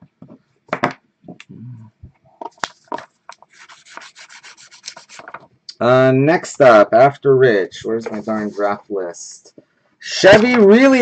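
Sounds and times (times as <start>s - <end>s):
marker pen scribbling on paper: 3.5s - 5.3s.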